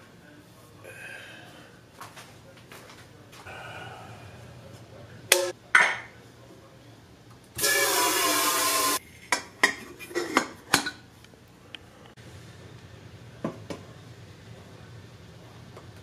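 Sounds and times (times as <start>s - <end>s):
tap water running into kettle: 7.6s - 9.0s.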